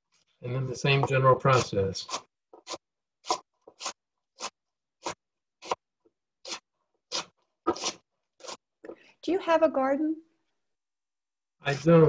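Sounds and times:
knife slicing cabbage on cutting board: 6.4s - 8.6s.

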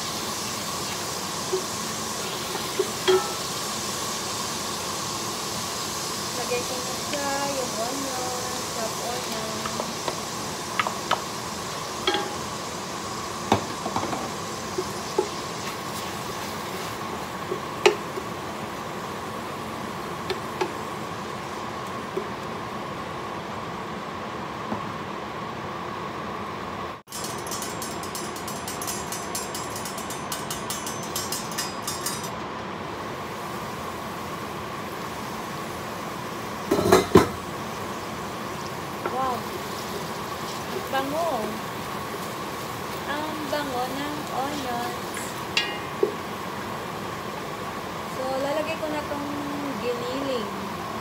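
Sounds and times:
hot oil hissing: 0.0s - 25.5s, 26.5s - 51.0s
steady hum: 0.0s - 51.0s
spoon knocking against metal pot: 2.8s - 3.4s, 12.1s - 12.4s, 27.1s - 32.3s, 45.6s - 46.2s
wooden spoon stirring onion: 13.6s - 18.4s.

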